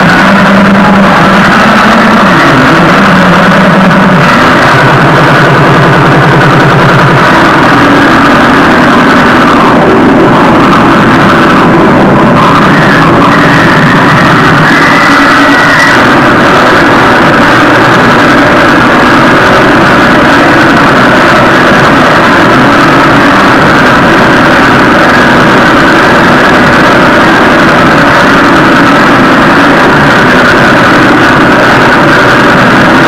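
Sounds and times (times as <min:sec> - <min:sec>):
loud distorted live band: 0:00.0 - 0:33.0.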